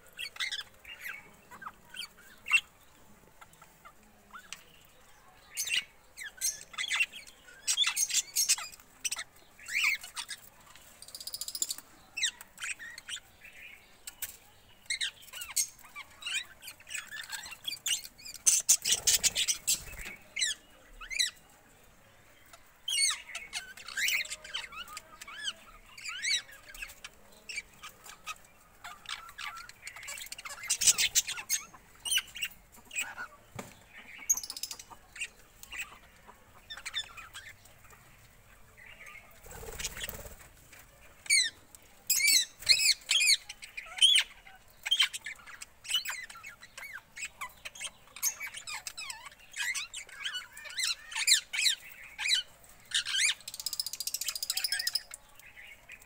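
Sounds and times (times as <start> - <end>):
parrots chirping and squawking: 0.1 - 2.8, 5.6 - 10.5, 14.9 - 21.4, 22.5 - 33.4, 34.0 - 38.1, 41.2 - 55.2.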